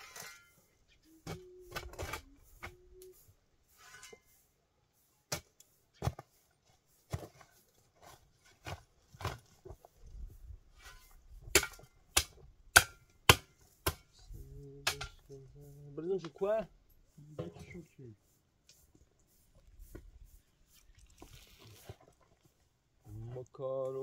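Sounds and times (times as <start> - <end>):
metal shovel scraping soil: 0.0 - 9.8, 10.7 - 12.2, 14.8 - 18.2, 19.8 - 22.6.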